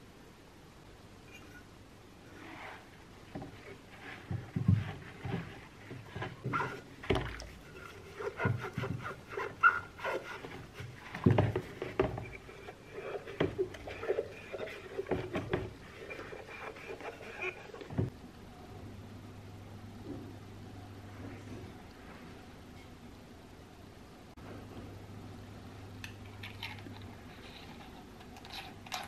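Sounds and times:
water sloshing and splashing: 4.2s - 9.2s
wet glass squeaking: 6.1s - 18.1s.

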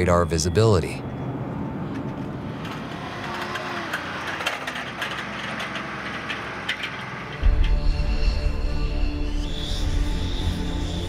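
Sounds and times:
engine running steadily: 1.4s - 11.0s
clicks and rattles: 1.9s - 7.8s.

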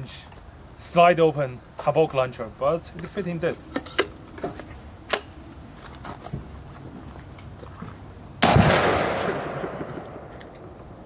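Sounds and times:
launcher firing report: 8.4s - 10.8s.

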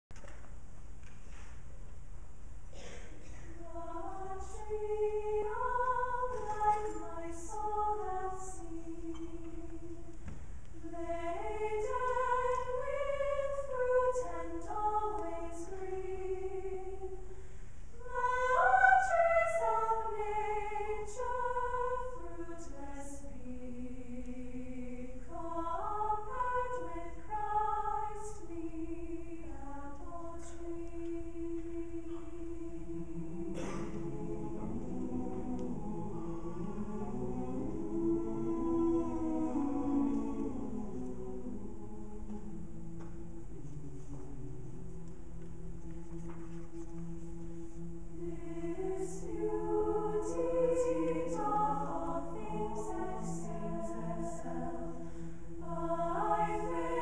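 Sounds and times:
mixed choir singing: 3.5s - 57.0s.

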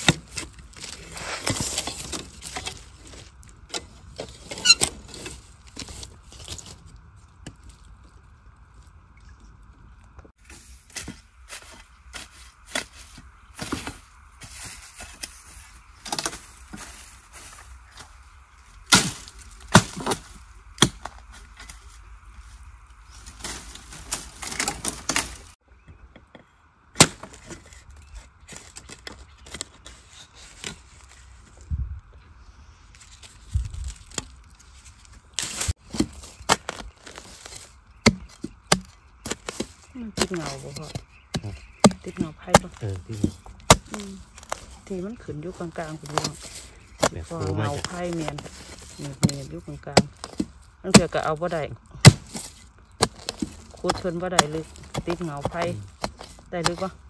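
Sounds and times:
crunching of dry leaf litter: 0.0s - 25.6s, 27.0s - 57.0s
blade chopping bamboo: 35.4s - 44.6s, 52.0s - 56.9s.

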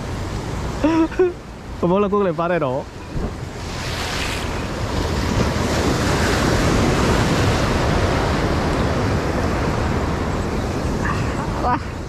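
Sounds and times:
surf breaking over rocks: 1.9s - 12.0s
wind buffeting microphone: 2.8s - 12.0s.

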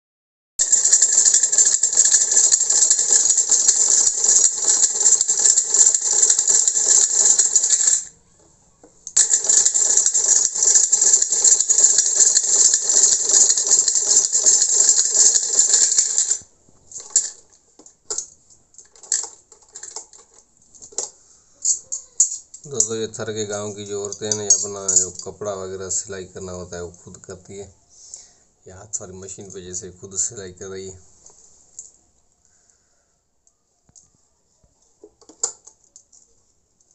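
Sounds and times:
sewing machine clatter: 0.6s - 8.1s, 9.2s - 17.4s.

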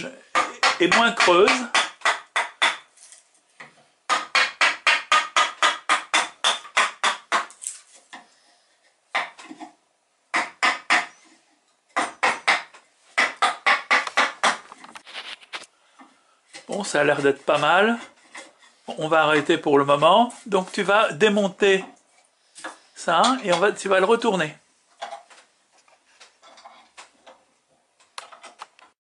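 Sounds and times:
wooden mallet knocking on gouge: 0.3s - 2.8s, 4.1s - 7.5s, 12.0s - 14.6s.

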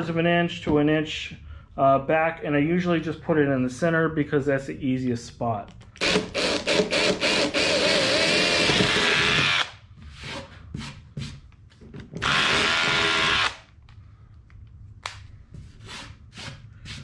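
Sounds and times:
impact driver drilling through plywood: 6.0s - 9.8s, 12.2s - 13.6s.

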